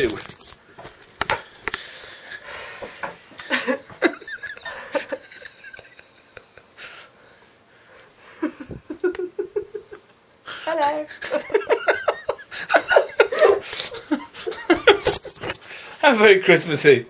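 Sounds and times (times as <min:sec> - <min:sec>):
woman giggling: 0:03.4 - 0:06.7, 0:08.3 - 0:10.1, 0:10.7 - 0:15.4.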